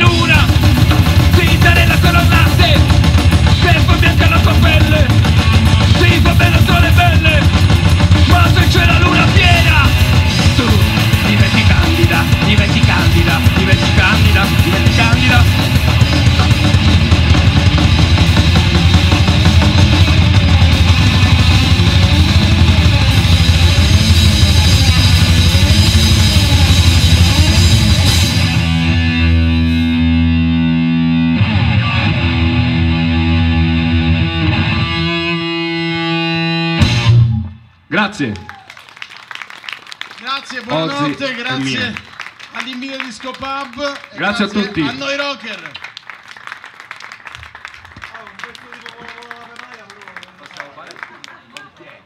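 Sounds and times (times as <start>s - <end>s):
drum kit: 0.0s - 35.0s, 36.5s - 37.5s
bass guitar: 0.0s - 38.6s, 40.7s - 42.1s
electric guitars: 0.0s - 38.8s.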